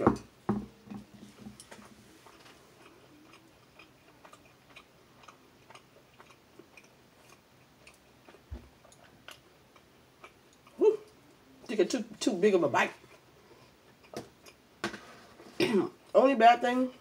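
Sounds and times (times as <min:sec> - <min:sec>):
faint chewing: 0:00.9 - 0:11.7, 0:12.9 - 0:14.6.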